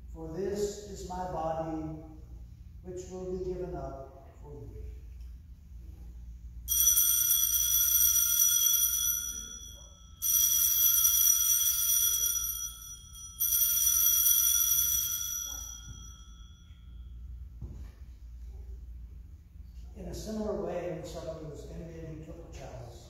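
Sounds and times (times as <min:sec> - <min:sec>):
altar bells jingling: 0:06.7 - 0:17.2.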